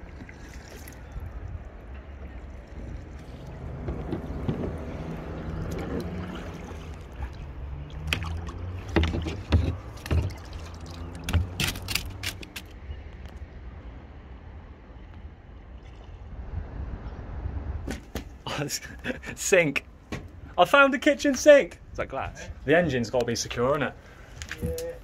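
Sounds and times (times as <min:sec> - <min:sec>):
water slapping: 0:00.0 - 0:12.6
rumble of water and wind: 0:00.0 - 0:25.0
paddle knocking hull: 0:03.2 - 0:11.6.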